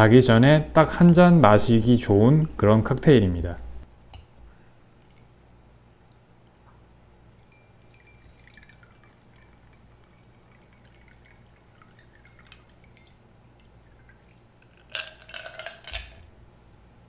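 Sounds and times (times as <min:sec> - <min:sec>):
ice clinking in glass: 0:07.4 - 0:09.6, 0:14.7 - 0:16.2
liquid trickling and dripping: 0:07.4 - 0:16.2.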